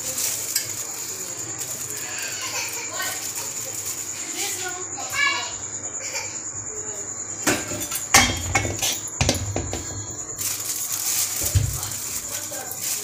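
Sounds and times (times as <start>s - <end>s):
cup knocking on steel bowl: 8.2s - 10.1s.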